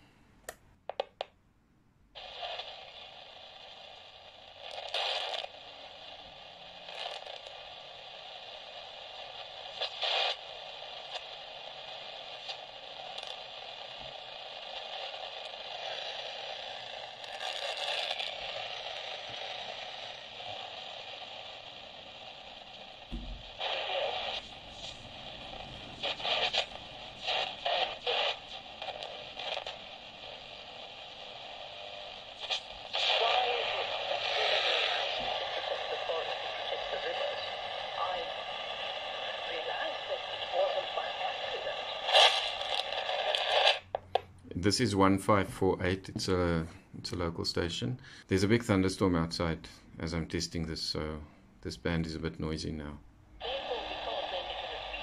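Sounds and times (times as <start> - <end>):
radio static hiss: 2.2 - 55.0
sharp radio crackles: 2.2 - 55.0
low thump: 23.1 - 23.5.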